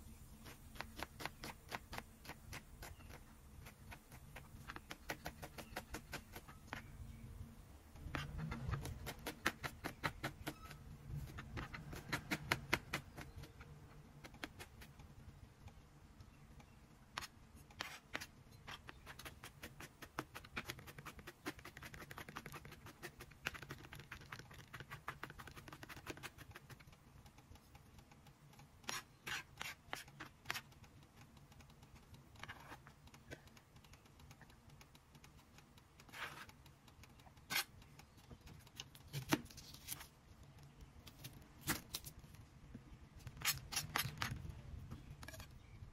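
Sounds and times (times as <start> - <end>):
knife chopping on plastic board: 8.0 - 13.6.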